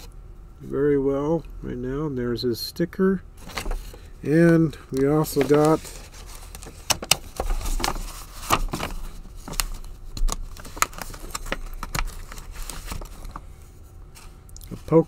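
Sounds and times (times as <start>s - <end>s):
paper envelope crinkling: 4.9s - 13.5s.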